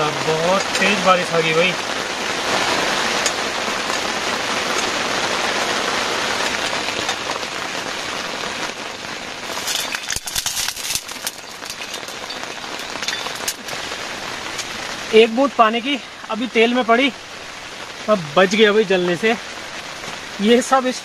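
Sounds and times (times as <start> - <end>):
heavy rain on a tent: 0.0 - 21.0
sharp crackles: 0.3 - 15.5.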